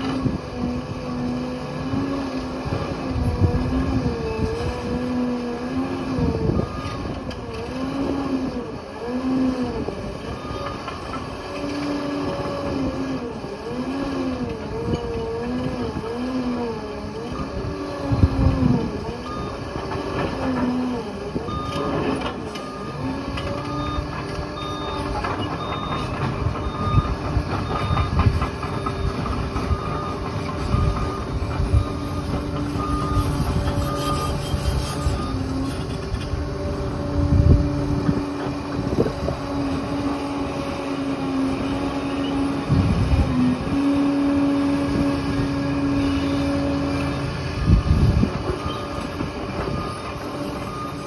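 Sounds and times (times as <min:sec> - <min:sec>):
diesel engine running under load: 0:00.0 - 0:51.0
reversing alarm beeping: 0:06.5 - 0:07.1, 0:10.2 - 0:11.0, 0:17.3 - 0:17.8, 0:19.2 - 0:19.8, 0:21.5 - 0:36.1, 0:48.4 - 0:51.0
tracks and blade clanking: 0:19.1 - 0:45.0, 0:46.7 - 0:51.0.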